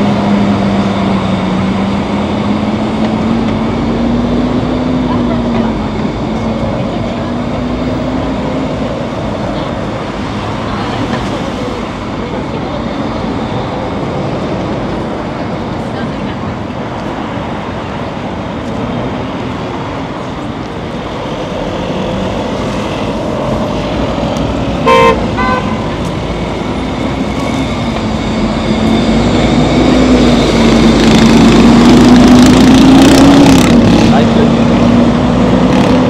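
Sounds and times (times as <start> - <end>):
vehicle engine hum: 0.0 - 36.0
vehicles running past: 0.0 - 36.0
car horn honk: 24.8 - 26.0.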